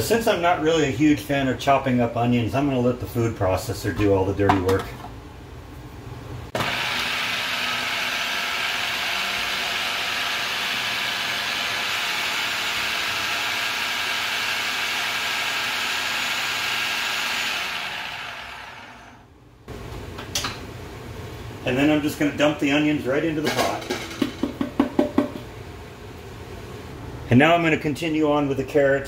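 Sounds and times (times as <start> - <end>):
food processor running: 6.6 - 19.3.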